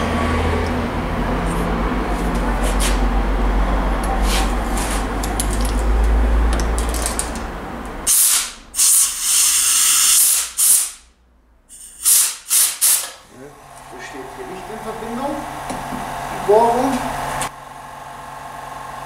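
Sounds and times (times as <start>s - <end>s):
air compressor humming: 0.0s - 11.0s, 11.7s - 19.0s
compressed air blasts hissing: 4.2s - 5.2s, 8.1s - 11.1s, 11.7s - 13.2s.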